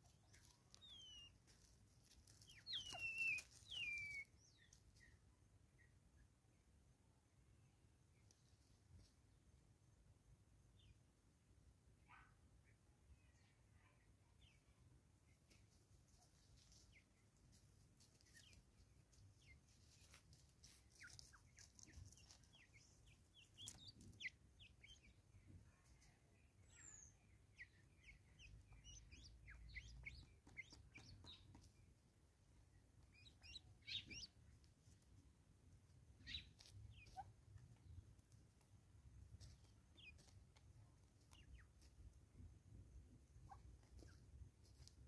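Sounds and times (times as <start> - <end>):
faint bird chirps: 0.3 - 1.4, 2.4 - 6.0, 20.9 - 31.9, 33.0 - 34.4, 36.2 - 37.3.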